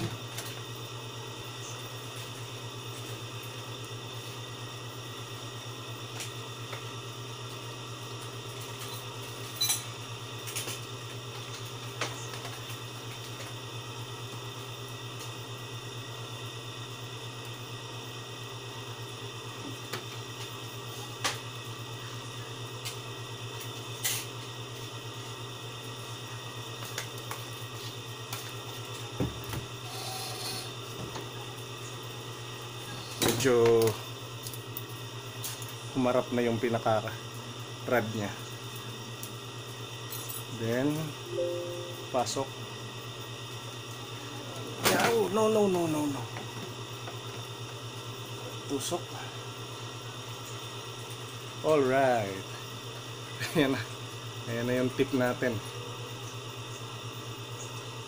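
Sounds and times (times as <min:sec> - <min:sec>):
steady low hum: 0:41.0 - 0:43.0.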